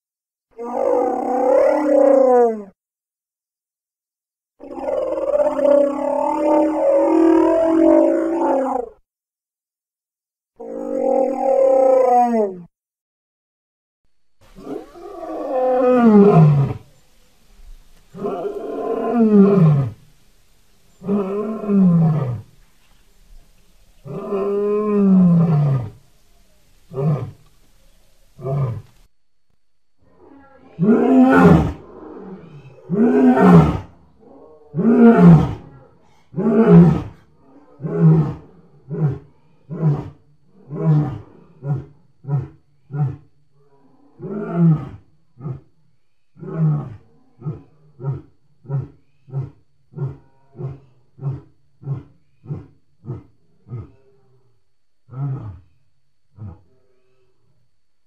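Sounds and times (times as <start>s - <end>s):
low dinosaur roars: 0.6s - 2.7s, 18.1s - 20.0s, 24.0s - 26.0s, 55.1s - 56.8s.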